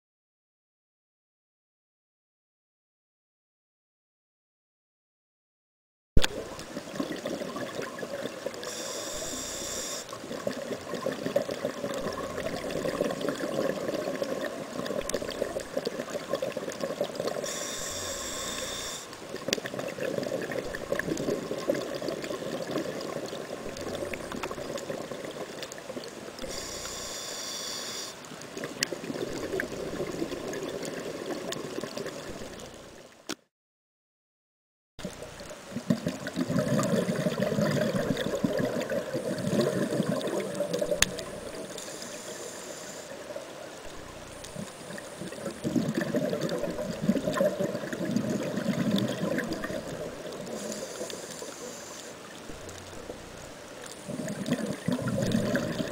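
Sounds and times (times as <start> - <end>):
regulator hissing inhalations: 8.6 - 10.2, 17.4 - 19.2, 26.4 - 28.2, 41.6 - 43.3, 50.5 - 52.3
bubbling exhaust bubbles: 10.2 - 17.5, 28.7 - 32.6, 35.0 - 41.7, 43.9 - 50.7, 54.0 - 55.9.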